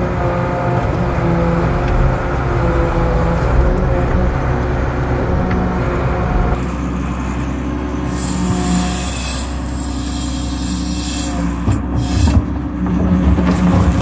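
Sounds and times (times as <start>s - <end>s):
diesel excavator engine running: 0.0s - 14.0s.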